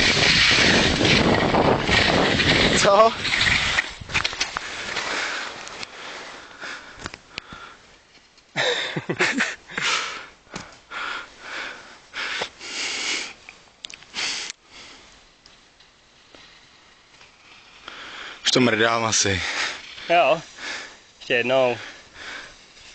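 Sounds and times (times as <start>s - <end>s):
sniffs and nasal breaths: 4.5s - 8.0s, 9.7s - 15.3s, 17.6s - 18.5s, 19.4s - 22.9s.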